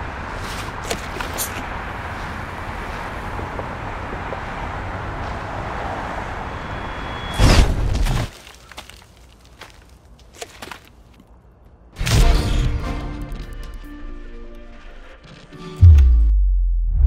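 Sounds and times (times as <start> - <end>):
street traffic: 0.0 - 12.0.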